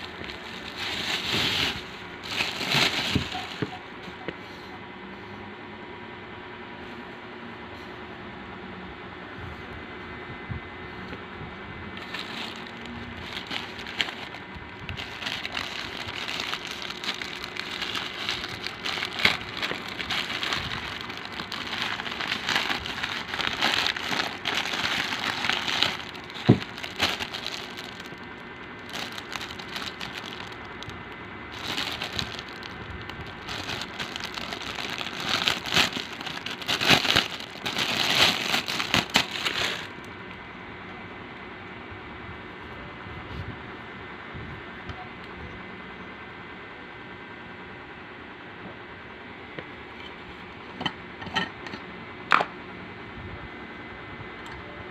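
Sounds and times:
plastic packaging crinkling: 0.0s - 3.8s, 12.0s - 40.1s.

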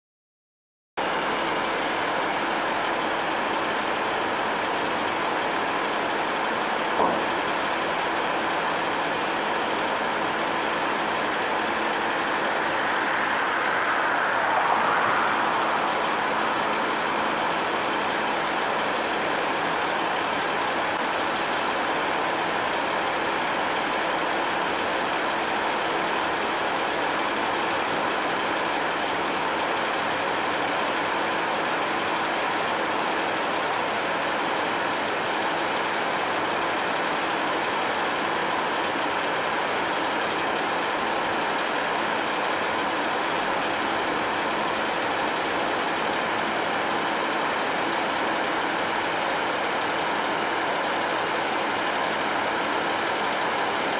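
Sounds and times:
dump truck engine running: 4.0s - 13.2s.

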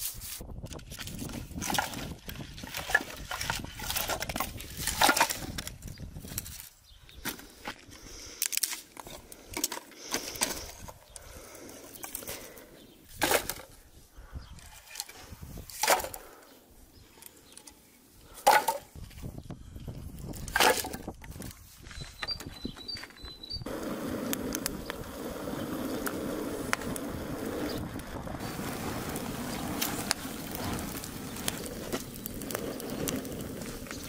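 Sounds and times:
dry twigs rustling: 0.0s - 34.0s
logs clunking on wood pile: 1.3s - 6.6s, 8.5s - 11.0s, 13.2s - 13.8s, 14.6s - 16.4s, 18.3s - 19.2s, 20.4s - 21.5s.

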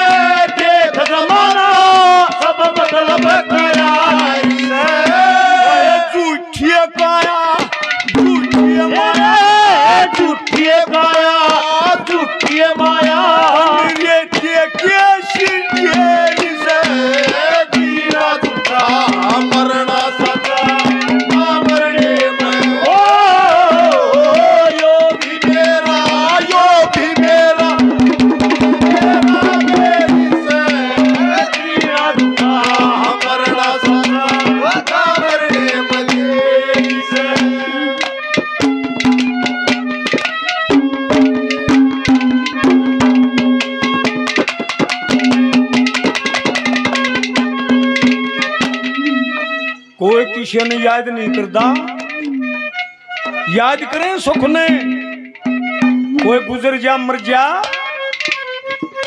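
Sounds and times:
hand drum beat: 0.0s - 5.9s, 7.0s - 49.8s, 51.5s - 53.4s, 54.3s - 56.5s
bending melody instrument: 7.7s - 59.0s
held drone note: 26.9s - 30.7s, 48.6s - 49.9s.

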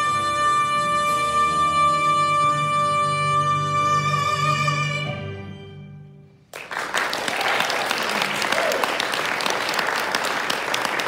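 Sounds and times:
audience applause: 6.5s - 11.0s.

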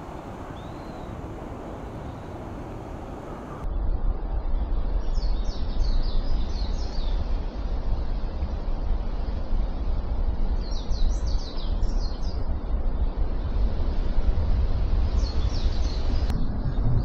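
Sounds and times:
small bird calling: 0.0s - 3.6s
steady low rumble: 0.0s - 17.0s.

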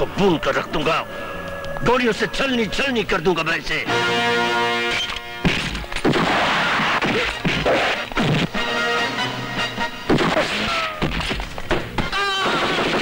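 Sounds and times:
loud background score: 0.0s - 13.0s
punches and smashing hits: 5.4s - 8.6s, 10.1s - 11.9s.

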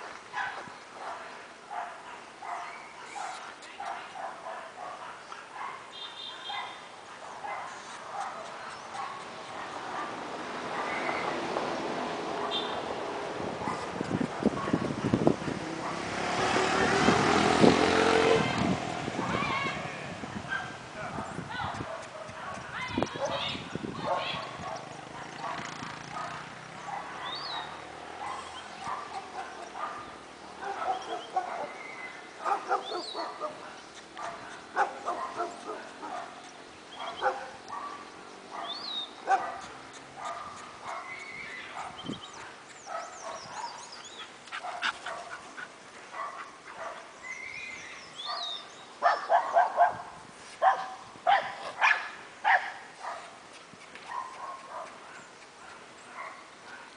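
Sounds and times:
small dog barking: 0.4s - 11.4s, 12.4s - 12.8s, 13.6s - 15.2s, 20.4s - 31.8s, 32.4s - 47.1s, 48.2s - 53.4s, 54.1s - 56.9s.

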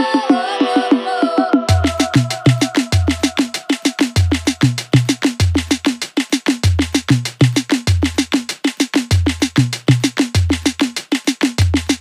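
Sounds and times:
drum-led beat with bass: 0.0s - 12.0s.

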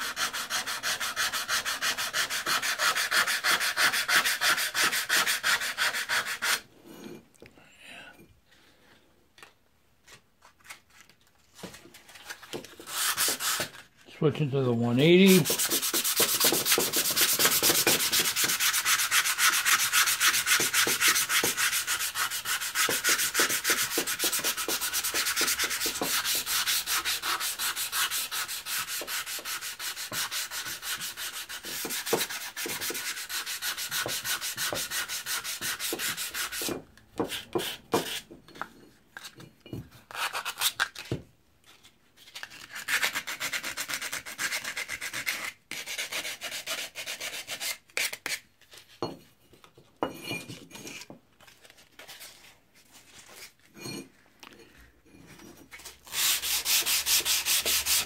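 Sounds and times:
sandpaper scratching on metal: 0.0s - 6.6s, 15.2s - 36.7s, 56.1s - 58.0s.

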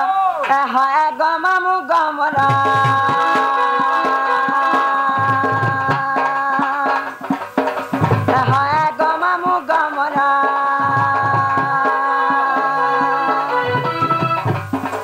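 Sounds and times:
person singing: 0.0s - 7.3s, 8.0s - 14.7s
hand drum rhythm: 0.0s - 15.0s
steady held melody: 10.8s - 15.0s.

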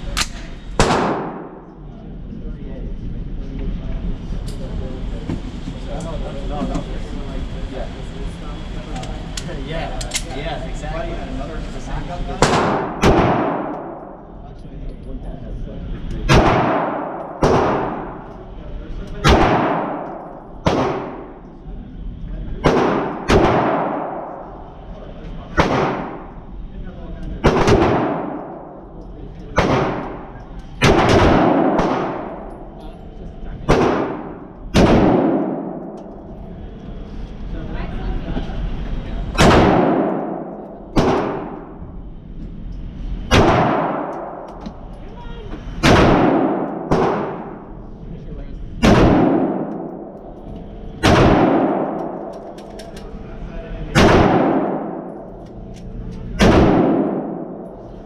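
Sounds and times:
rifle shots with echo: 0.2s - 1.7s, 12.4s - 14.2s, 16.3s - 18.2s, 19.2s - 21.4s, 22.6s - 24.4s, 25.5s - 26.4s, 27.4s - 28.8s, 29.5s - 32.5s, 33.6s - 36.3s, 39.4s - 41.8s, 43.3s - 44.5s, 45.8s - 47.7s, 48.8s - 50.2s, 51.0s - 52.6s, 53.9s - 55.4s, 56.4s - 57.7s.

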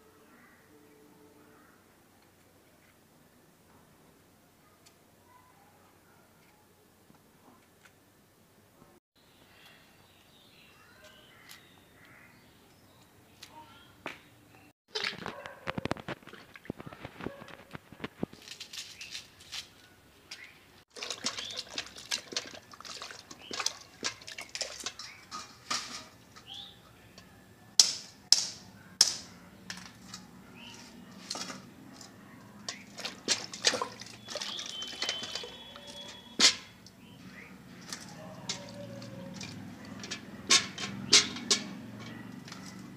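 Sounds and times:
water splashing and sloshing: 14.9s - 17.6s, 20.3s - 26.5s, 30.8s - 36.8s, 37.6s - 42.9s
steel utensils clinking: 20.9s - 42.9s.

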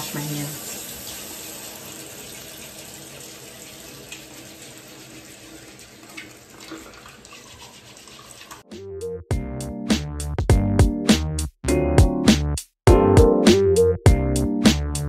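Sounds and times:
water splashes: 0.0s - 8.7s
tap running into a sink: 6.0s - 8.7s.

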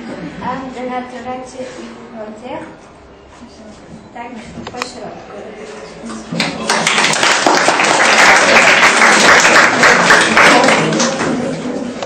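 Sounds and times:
audience applauding: 6.4s - 11.6s.

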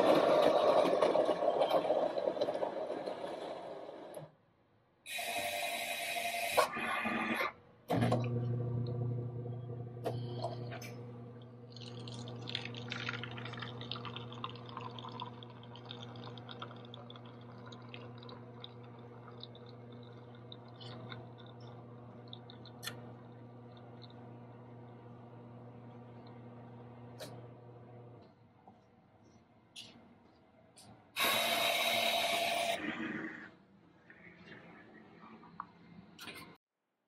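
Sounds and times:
coffee machine humming: 8.0s - 28.2s, 31.2s - 32.9s
coffee pouring into paper cup: 11.7s - 24.3s.

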